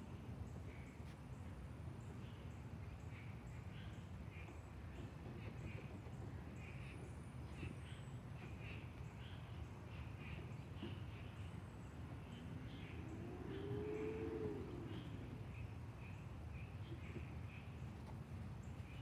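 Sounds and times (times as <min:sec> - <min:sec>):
low hum changing pitch: 0:12.4 - 0:15.7.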